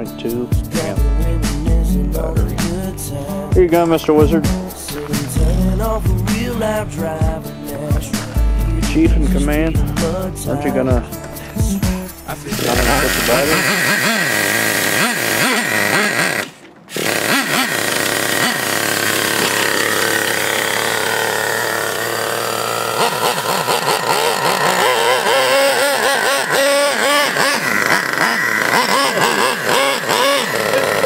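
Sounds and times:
electric starter wand spinning: 2.2s - 9.0s, 11.1s - 31.0s
small nitro engine revving: 12.5s - 31.0s.

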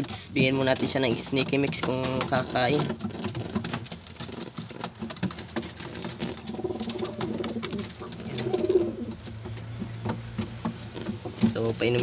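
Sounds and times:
pigeon cooing: 2.4s - 12.0s.

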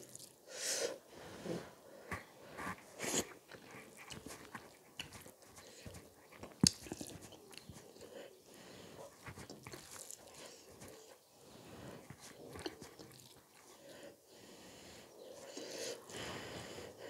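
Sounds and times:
person chewing: 2.6s - 8.1s, 9.0s - 11.2s, 11.8s - 13.8s.

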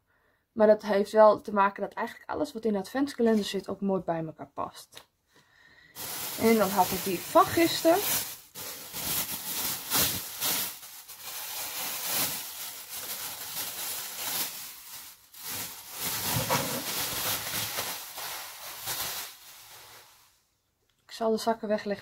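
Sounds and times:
bags rustling: 6.0s - 20.4s.

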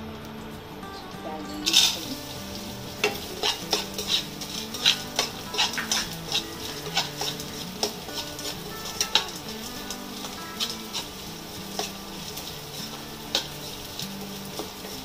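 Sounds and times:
frying sizzle: 0.0s - 15.0s
metal spatula scraping a pan: 1.5s - 15.0s.

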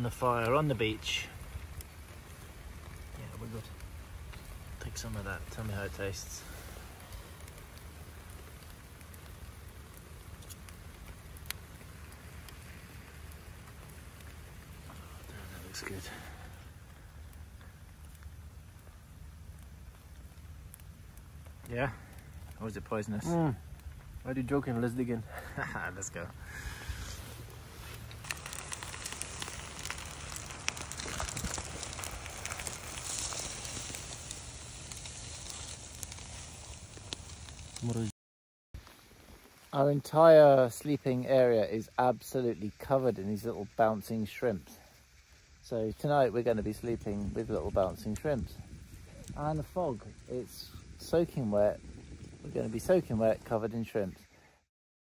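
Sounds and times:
campfire crackling and popping: 0.0s - 38.1s, 38.8s - 54.4s
aluminium foil crinkling: 27.8s - 38.1s.

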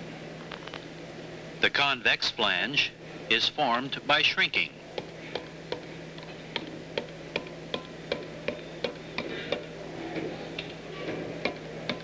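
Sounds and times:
hammer tapping metal: 6.5s - 10.7s, 11.4s - 12.0s.

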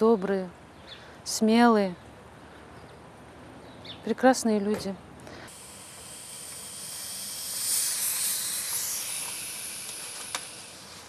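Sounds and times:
air hissing from a cuff: 5.4s - 11.0s.

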